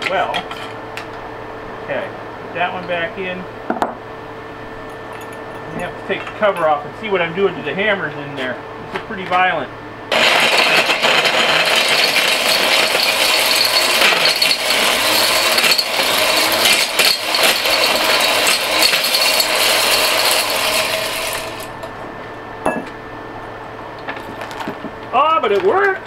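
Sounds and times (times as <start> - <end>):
hammer mill shredding metal: 10.1 - 22.0.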